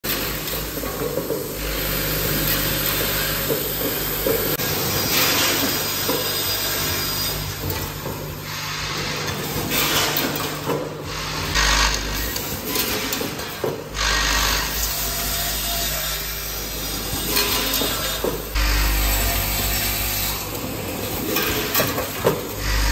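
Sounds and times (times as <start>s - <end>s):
vibratory bowl feeders humming: 0.1s - 22.9s
plastic parts rattling and scraping: 21.0s - 22.9s.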